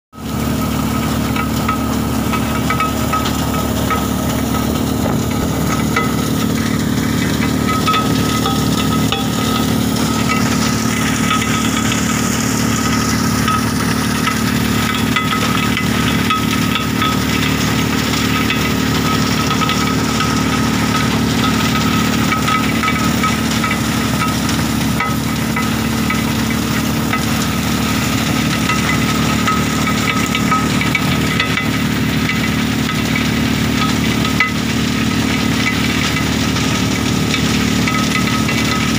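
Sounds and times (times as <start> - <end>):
vibrating feeder humming: 0.2 - 38.9
stone rattling in steel pan: 1.4 - 27.4.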